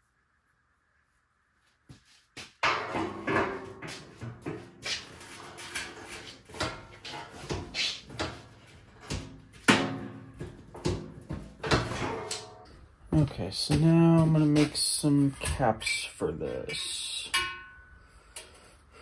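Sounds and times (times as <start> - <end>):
metal knocks and clanks: 2.6 - 15.8.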